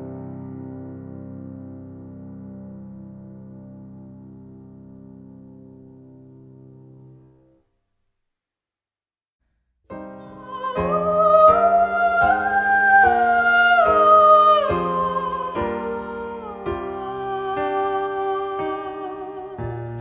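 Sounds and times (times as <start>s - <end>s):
slow gliding melody: 10.0s - 20.0s.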